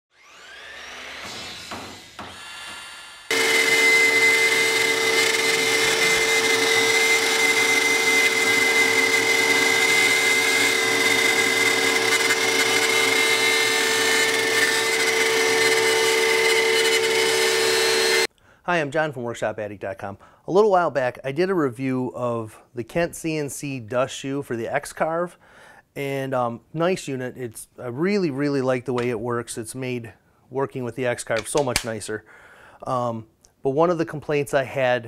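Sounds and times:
router spindle cutting wood: 0.1 - 18.3.

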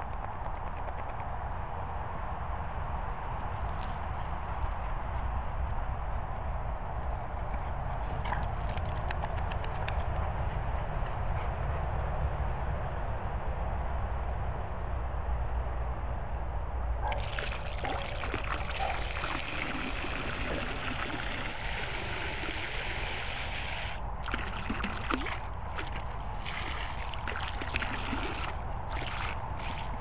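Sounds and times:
water spraying into pool: 17.1 - 30.0.

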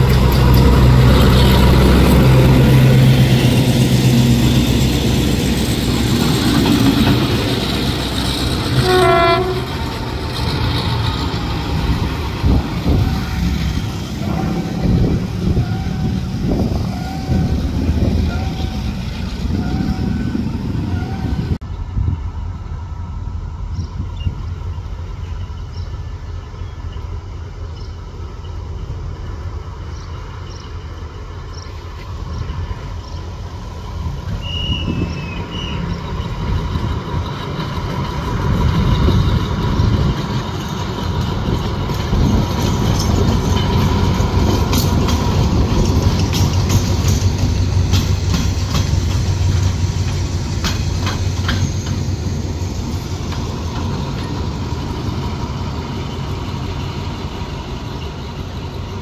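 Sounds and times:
locomotive engines droning: 0.0 - 59.0
wheels clicking over rail joints: 3.4 - 16.0, 34.1 - 57.4.

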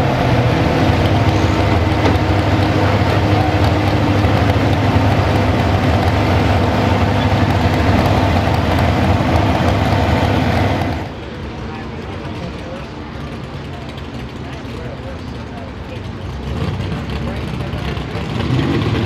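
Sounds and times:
truck engine idling loud: 0.0 - 19.0.

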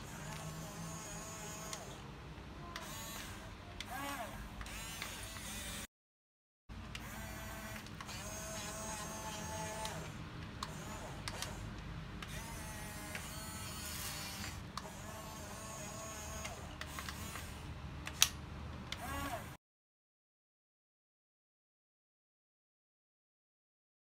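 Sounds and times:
toy electric motors whining: 0.0 - 2.0, 2.6 - 5.9, 6.9 - 19.6
sharp click: 18.1 - 19.1.

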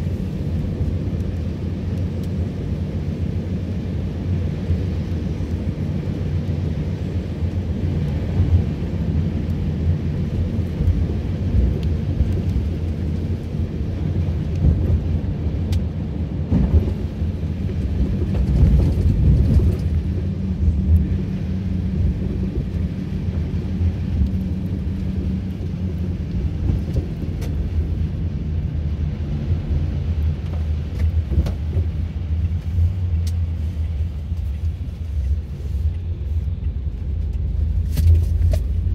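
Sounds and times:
car driving on wet road: 0.0 - 38.9.

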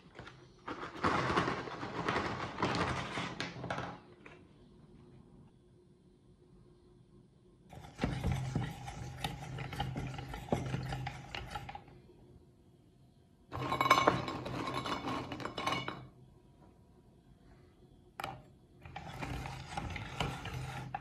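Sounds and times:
meat grinder rattling and grinding: 7.7 - 11.8.

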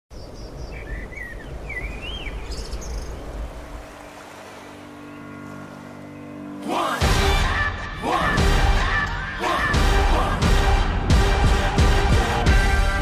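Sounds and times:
wind: 0.1 - 7.0.

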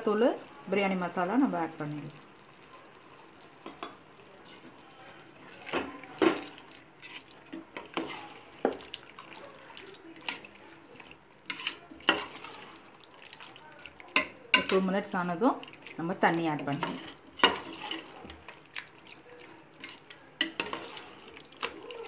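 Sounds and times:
thick mixture squelching: 0.0 - 22.0
metal spoon scraping a pot: 6.3 - 8.8, 11.4 - 12.8, 16.6 - 18.5, 19.8 - 21.9.

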